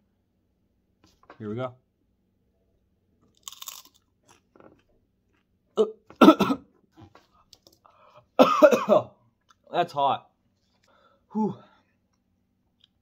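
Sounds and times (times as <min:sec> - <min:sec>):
crunch of biting pepper: 0:03.3 - 0:04.5
man gasping: 0:10.9 - 0:11.9.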